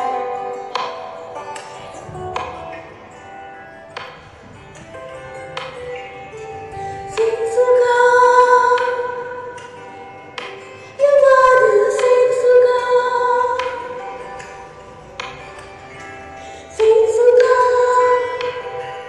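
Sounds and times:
backing chords: 0:00.0 - 0:19.0
woman singing: 0:06.7 - 0:10.0, 0:10.9 - 0:14.7, 0:16.5 - 0:19.0.

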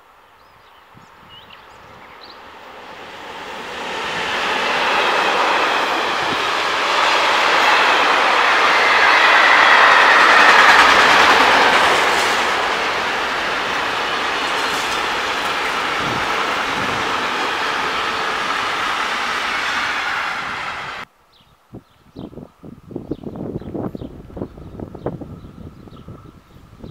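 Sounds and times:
freight train wheels on rails: 0:01.6 - 0:21.1.

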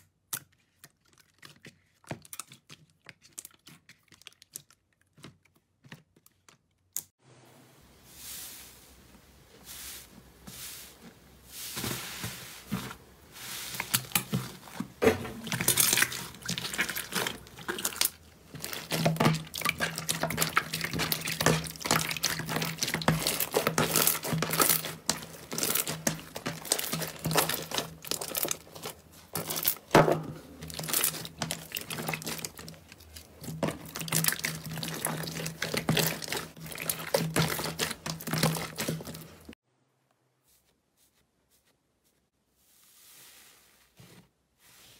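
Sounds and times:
slime squelching and popping: 0:13.7 - 0:39.5.

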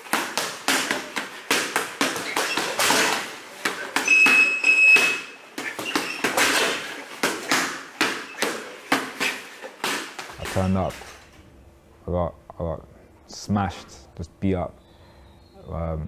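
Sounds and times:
high-pitched squeak: 0:04.0 - 0:06.4.

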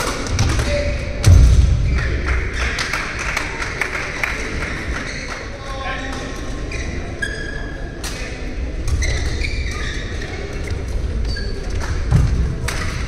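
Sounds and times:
shoes squeaking on court floor: 0:06.1 - 0:07.8, 0:08.9 - 0:11.8.

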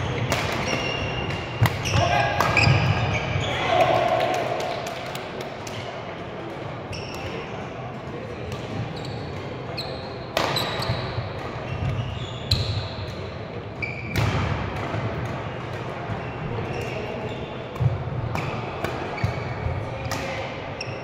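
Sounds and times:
shoes squeaking on court floor: 0:00.0 - 0:03.8, 0:06.8 - 0:07.6, 0:08.8 - 0:14.4, 0:16.1 - 0:17.8, 0:19.1 - 0:19.8.

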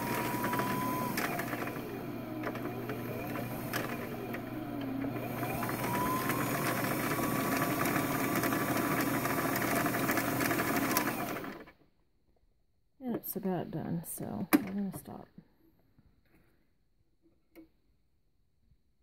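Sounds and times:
sewing machine motor whine: 0:00.0 - 0:11.7.

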